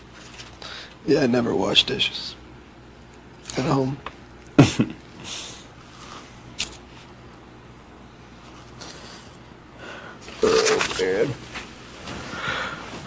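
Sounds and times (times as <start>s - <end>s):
faint breaths: 0.5s - 1.0s, 8.4s - 10.3s, 12.1s - 13.0s
man laughing: 4.6s - 5.0s.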